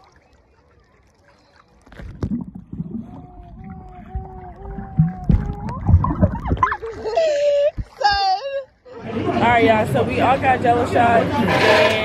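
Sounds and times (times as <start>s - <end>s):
water knocking against microphone: 1.8s - 8.4s.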